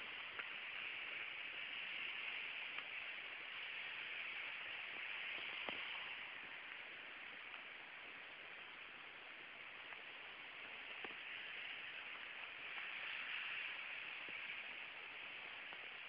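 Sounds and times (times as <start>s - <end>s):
stream water rushing: 0.0s - 16.0s.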